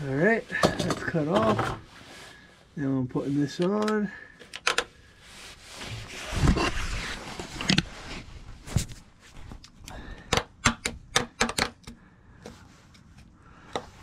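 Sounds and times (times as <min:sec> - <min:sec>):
rustling handling noise: 0:00.0 - 0:09.8.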